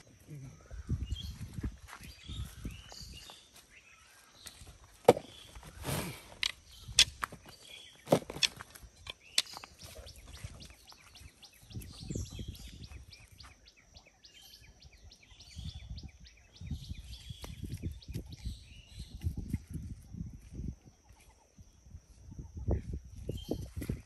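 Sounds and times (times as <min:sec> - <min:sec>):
birds chirping: 0:00.0 - 0:24.0
sticks scuffing and rustling: 0:01.5 - 0:11.2
bamboo sticks clacking together: 0:06.3 - 0:10.1.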